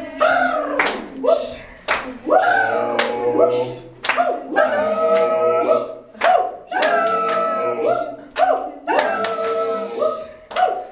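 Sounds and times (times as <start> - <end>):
group singing unaccompanied: 0.0 - 10.9
hand claps: 0.8 - 2.2, 2.9 - 5.4, 6.2 - 7.6, 8.2 - 10.9.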